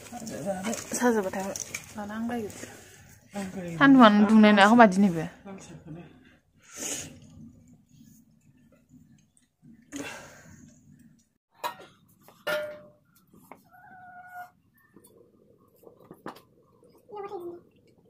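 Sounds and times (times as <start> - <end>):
metal pots and plates clinking: 11.6 - 13.1.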